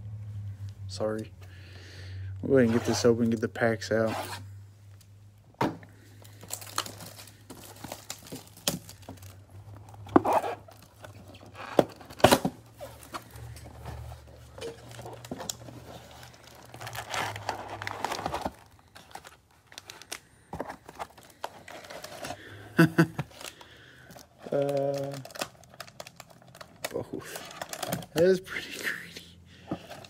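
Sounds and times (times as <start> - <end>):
plastic crinkling: 6.1 - 28.3
cardboard tearing: 10.0 - 13.3, 14.8 - 20.2.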